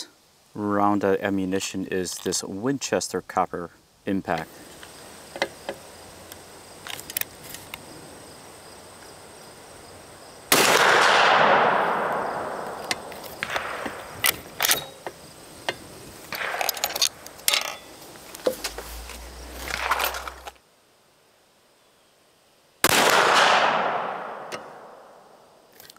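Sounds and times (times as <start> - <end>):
loud gunshot: 10.5 - 12.8, 13.4 - 14.0, 22.8 - 25.2.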